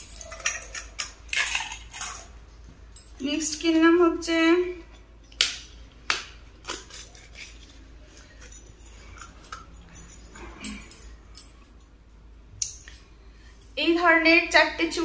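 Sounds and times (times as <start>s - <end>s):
bangles clinking: 0.0s - 2.3s, 6.6s - 13.1s.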